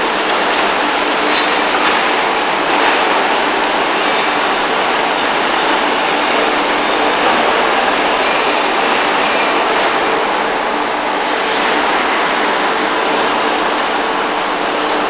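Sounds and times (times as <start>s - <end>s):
factory floor rushing noise: 0.0s - 15.0s.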